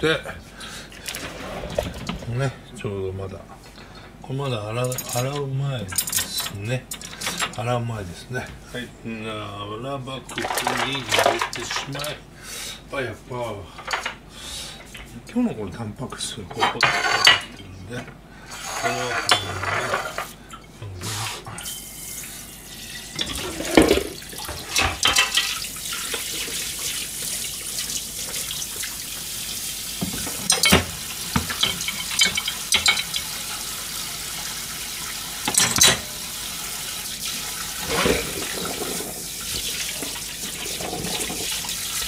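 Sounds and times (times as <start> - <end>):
crockery clinking: 16.5 - 17.5, 18.6 - 20.3, 30.0 - 33.3, 35.5 - 36.1
tap running into sink: 30.0 - 33.4.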